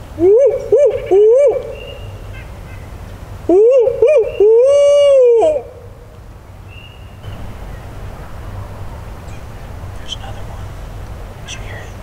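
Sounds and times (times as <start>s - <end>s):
owl hooting: 0.2s - 2.8s, 3.5s - 5.9s.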